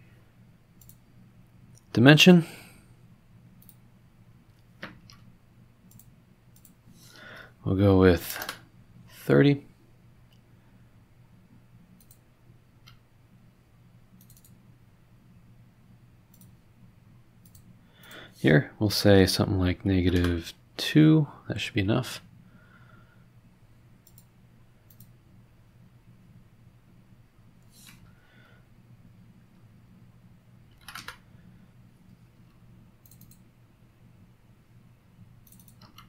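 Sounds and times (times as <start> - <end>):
low room hum: 0.0 - 36.0
computer mouse clicks: 0.8 - 1.0, 3.6 - 3.8, 5.9 - 6.8, 12.0 - 12.2, 14.2 - 14.6, 16.3 - 16.6, 17.4 - 18.2, 24.0 - 24.3, 24.9 - 25.2, 33.0 - 33.5, 35.4 - 36.0.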